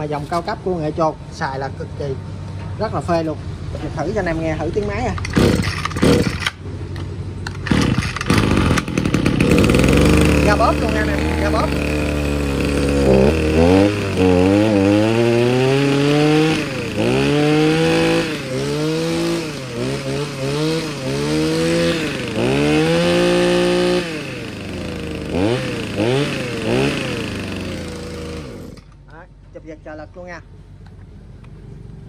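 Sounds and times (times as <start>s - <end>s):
brush cutter engine revving: 4.7s - 6.6s, 7.5s - 29.1s.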